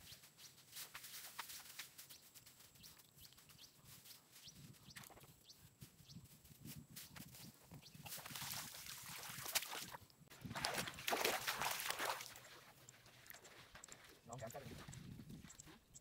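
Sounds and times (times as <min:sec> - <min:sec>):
rustling and mud sounds: 0:00.0 - 0:16.0
faint ticks and short chirps: 0:12.8 - 0:16.0.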